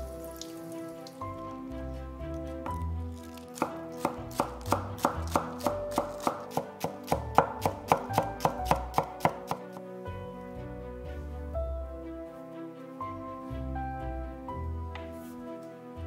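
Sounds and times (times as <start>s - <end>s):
knife chopping on wooden board: 3.3s - 9.8s.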